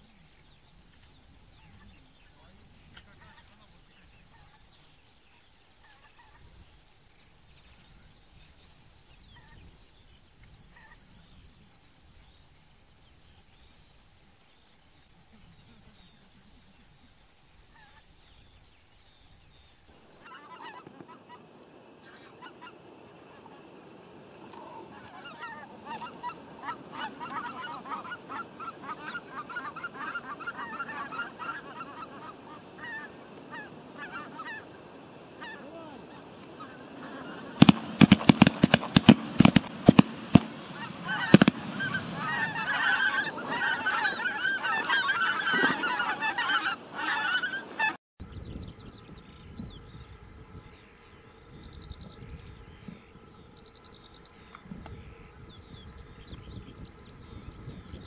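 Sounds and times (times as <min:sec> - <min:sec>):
geese honking: 0:01.5 - 0:06.5, 0:10.7 - 0:11.1, 0:15.3 - 0:18.1, 0:20.2 - 0:48.0
shotgun shots: 0:37.6 - 0:42.0.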